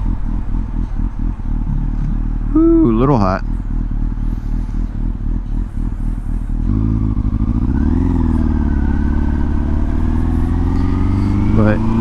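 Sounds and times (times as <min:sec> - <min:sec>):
motorcycle engine idling and revving: 0:00.0 - 0:12.0.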